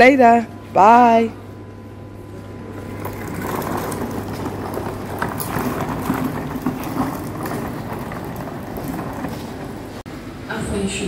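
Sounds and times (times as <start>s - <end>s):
footsteps: 2.3s - 10.0s
suitcase wheels rolling on tile: 2.6s - 10.1s.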